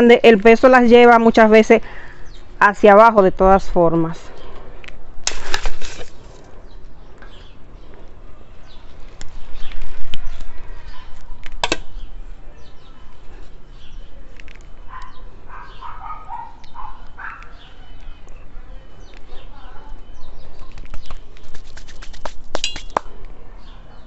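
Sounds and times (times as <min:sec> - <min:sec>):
soil rustling and scraping: 0:05.2 - 0:06.8.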